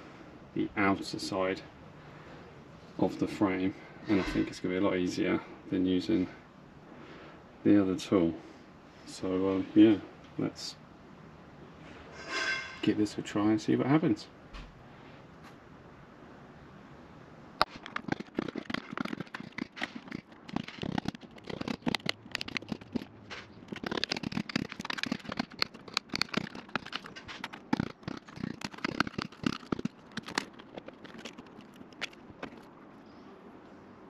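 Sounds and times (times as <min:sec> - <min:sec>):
plastic cracking and snapping: 0:17.6 - 0:32.7.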